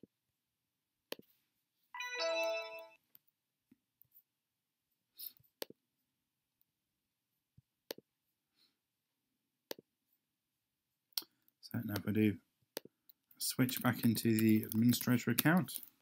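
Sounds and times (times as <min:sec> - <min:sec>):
keyboard and mouse clicks: 0:12.8 - 0:16.0.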